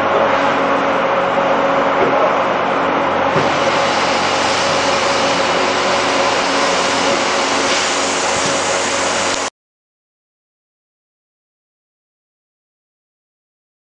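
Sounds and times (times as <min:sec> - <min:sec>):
factory machinery running: 0:00.0 - 0:09.5.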